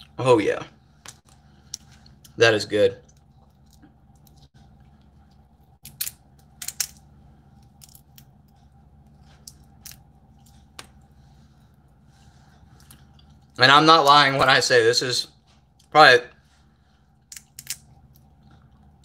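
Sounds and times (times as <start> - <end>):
crab shell cracking: 17.3 - 17.9.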